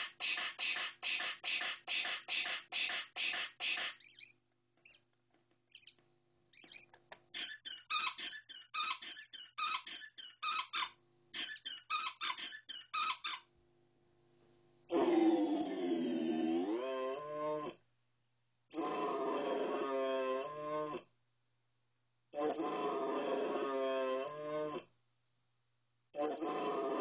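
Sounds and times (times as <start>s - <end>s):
glitched electronic stuttering: 0.0s - 4.0s.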